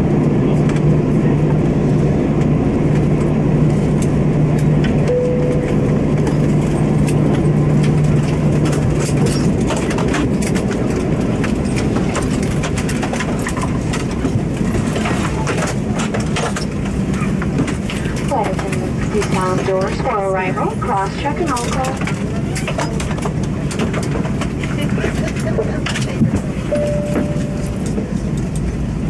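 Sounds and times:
airliner cabin rumble: 0.0 - 29.0
short cabin chime: 5.1 - 5.9, 26.7 - 27.9.

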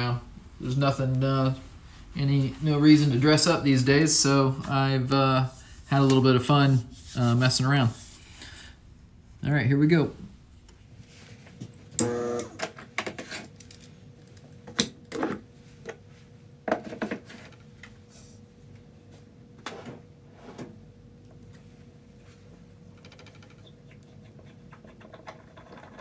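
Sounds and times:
faint steady hum: 0.0 - 26.0
brief buzz: 12.0 - 12.6.

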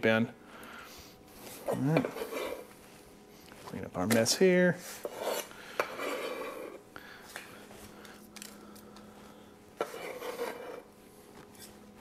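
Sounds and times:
knife scraping cutting board: 1.5 - 2.7, 4.9 - 6.8, 9.8 - 10.9.

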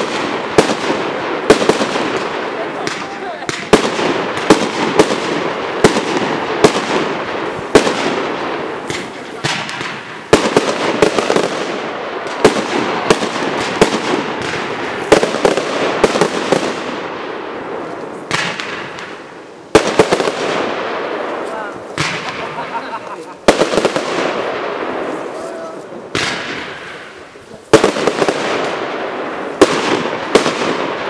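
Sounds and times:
fireworks bangs: 0.0 - 31.0.

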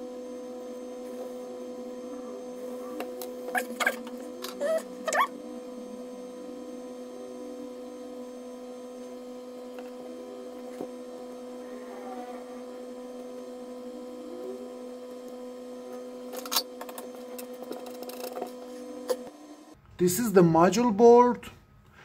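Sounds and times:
electrical hum: 0.0 - 22.0.

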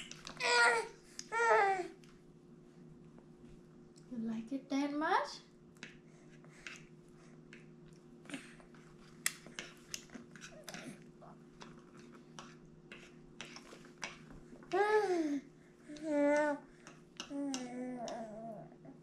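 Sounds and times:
baby chewing with wet smacks: 5.7 - 14.8.

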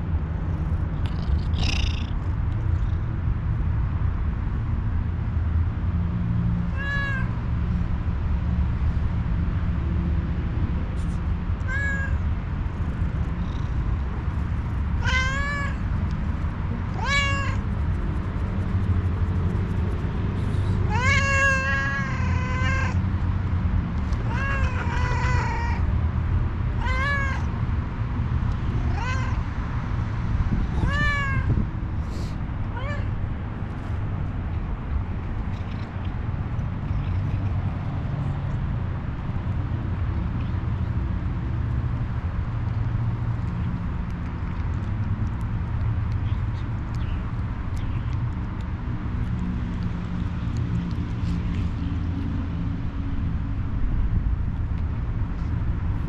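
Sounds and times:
steady low rumble: 0.0 - 56.0
cat meowing: 6.7 - 7.4, 11.6 - 12.2, 15.0 - 15.8, 16.9 - 17.7, 20.9 - 23.0, 24.1 - 25.9, 26.7 - 27.5, 28.7 - 29.5, 30.6 - 31.6, 32.7 - 33.2.

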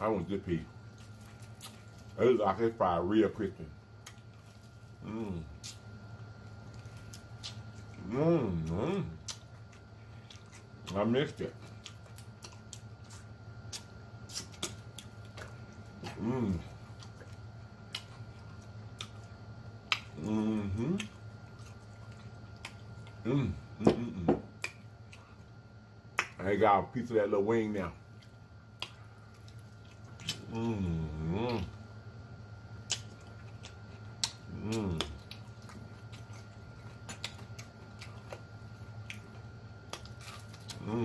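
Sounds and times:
person humming mmm: 5.0 - 5.8, 8.0 - 9.4, 16.0 - 16.8, 20.0 - 21.2, 23.2 - 24.5, 30.2 - 31.8, 34.2 - 35.4, 40.6 - 41.0
wet mouth clicks while chewing: 8.6 - 11.0, 11.6 - 23.2, 24.6 - 25.4, 28.2 - 30.5, 32.8 - 40.9.

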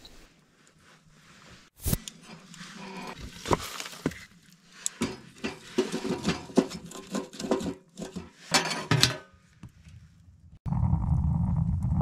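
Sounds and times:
metallic clanks against stove: 5.0 - 9.3.

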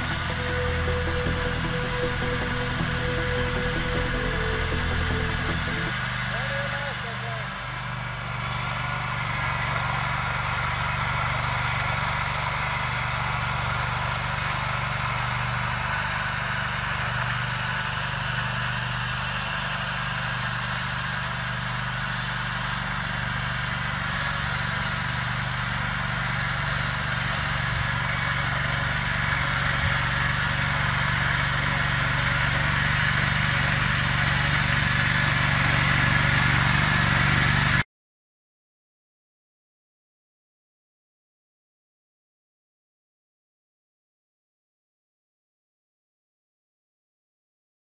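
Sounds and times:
walk-behind mower running: 0.0 - 37.8.

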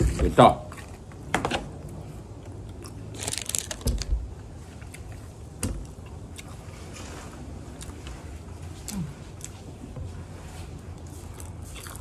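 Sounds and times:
person chewing and crunching food: 1.9 - 3.8, 4.4 - 12.0.

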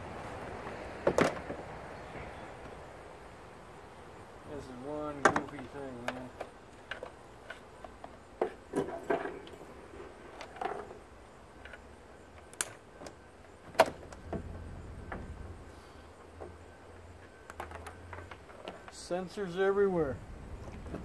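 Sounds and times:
plastic parts clicking and rattling: 17.2 - 19.0.

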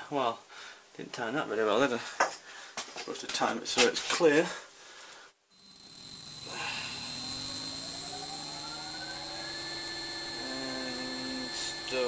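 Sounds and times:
milling machine motor whine: 5.5 - 12.0
steady high-pitched whine: 5.5 - 12.0.

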